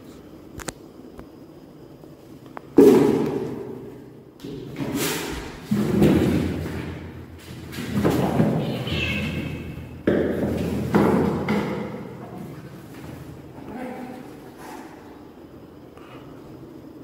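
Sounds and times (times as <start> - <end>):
kittens thumping on tiled floor: 4.4 - 13.4.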